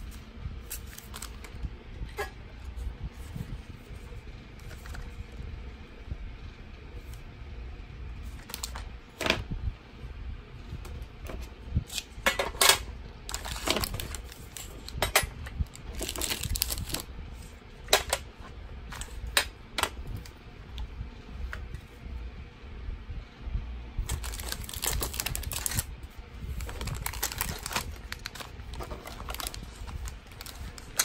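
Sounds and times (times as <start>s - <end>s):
plastic blister pack crinkling: 13.3s - 15.0s, 15.6s - 17.1s, 24.0s - 25.9s, 26.5s - 31.0s.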